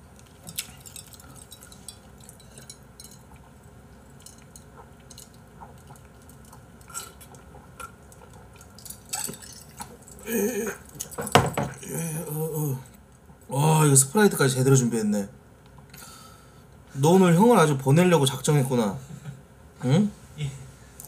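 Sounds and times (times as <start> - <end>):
person sipping and swallowing: 0.5 - 12.3.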